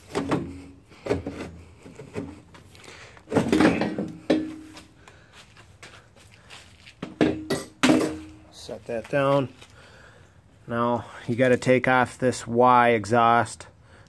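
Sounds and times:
metal pipe knocking against frame: 3.3 - 4.8, 7.0 - 8.4.

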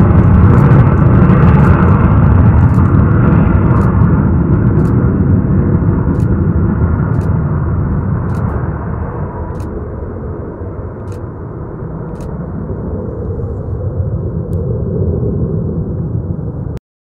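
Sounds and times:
jet engine deep rumble: 0.0 - 16.8
sharp clicks: 2.6 - 3.0, 4.7 - 5.0, 6.1 - 6.3, 8.3 - 8.7, 11.0 - 11.2.

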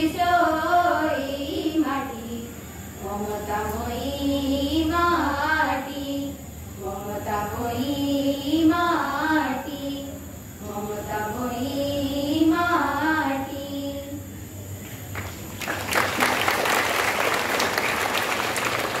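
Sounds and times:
children singing into microphones: 0.0 - 14.4
applause: 14.8 - 19.0.

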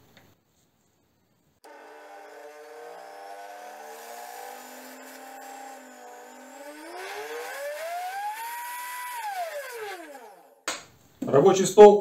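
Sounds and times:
router motor whining: 1.6 - 10.6.

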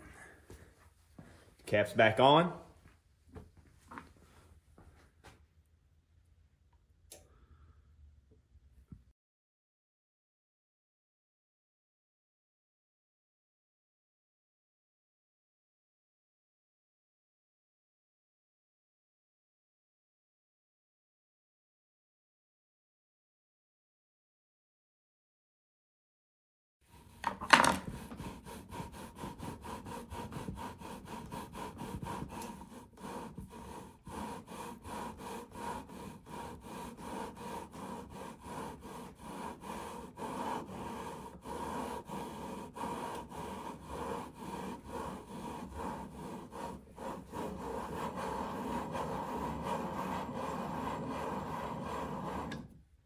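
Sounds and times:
gritty metal-on-metal rubbing: 26.9 - 52.7.

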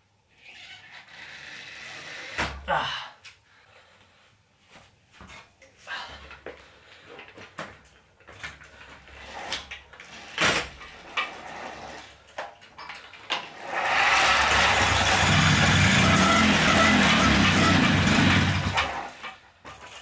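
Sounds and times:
moped engine running: 13.9 - 19.1.

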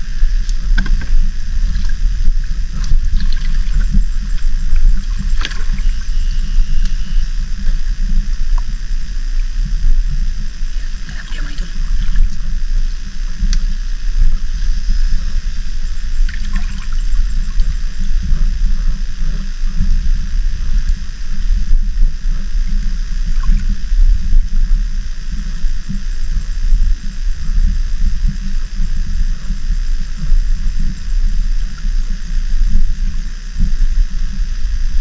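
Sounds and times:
seawater sloshing and gurgling: 0.3 - 8.7, 9.3 - 21.0, 21.8 - 24.2
small water splashes: 2.7 - 6.1, 10.8 - 12.3, 16.2 - 17.8.

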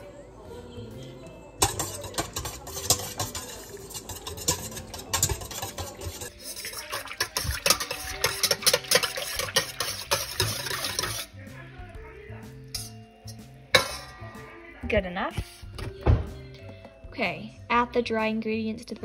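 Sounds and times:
whisk clicking against metal bowl: 1.6 - 11.3.

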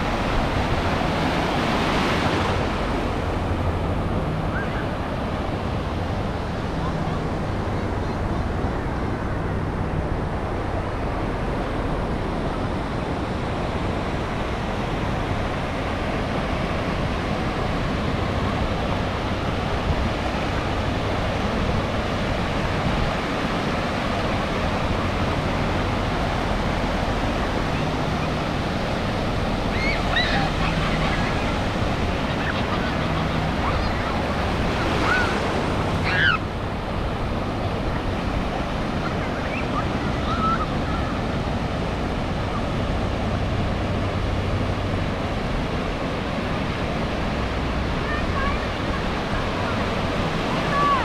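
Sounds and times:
water washing through shallows: 0.0 - 51.0
small waves breaking: 15.3 - 51.0.

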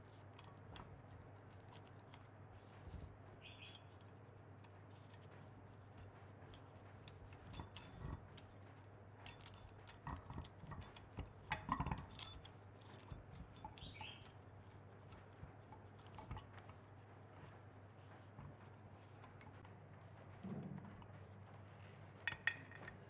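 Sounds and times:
metal clicks and clinks of vise: 9.2 - 14.1, 22.2 - 23.0.

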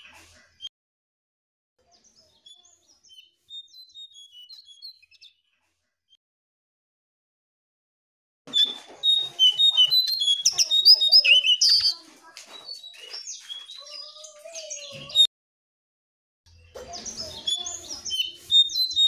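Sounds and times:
songbird chirping and whistling: 2.0 - 5.4, 8.5 - 15.3, 16.9 - 19.0.

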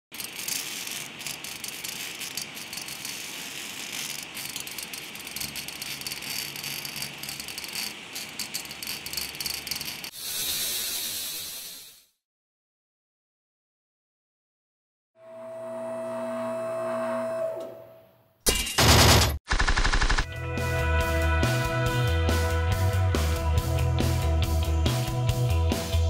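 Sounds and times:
crackling sizzling sparks: 0.1 - 12.1.

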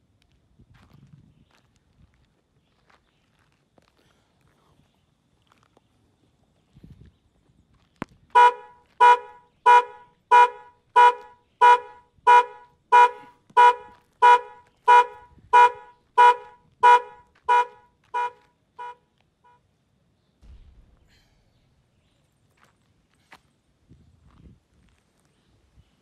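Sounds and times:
car alarm horn honking: 8.4 - 19.6.

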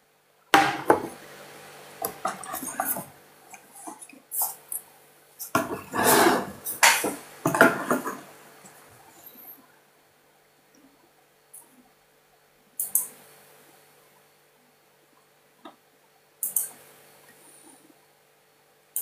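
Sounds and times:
rustling and knocking handling noise: 5.6 - 8.3.

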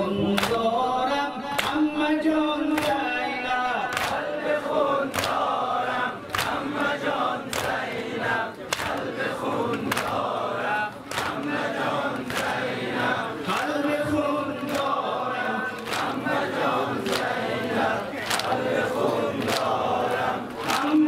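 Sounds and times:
men chanting in unison: 0.0 - 21.0
hands slapping chests: 3.9 - 4.2, 5.1 - 5.5, 6.3 - 6.7, 7.4 - 7.8, 8.7 - 9.1, 9.7 - 10.2, 11.0 - 11.6, 15.7 - 16.2, 18.2 - 18.6.

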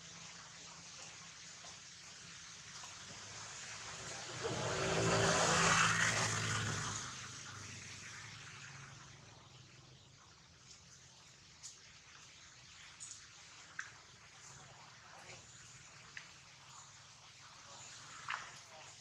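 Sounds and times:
vehicle driving past: 3.2 - 9.3.

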